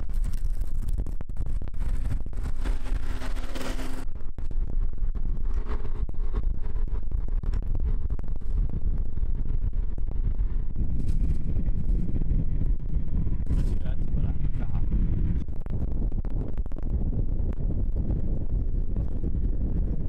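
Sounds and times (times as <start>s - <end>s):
low rumble of road traffic: 1.6s - 15.8s.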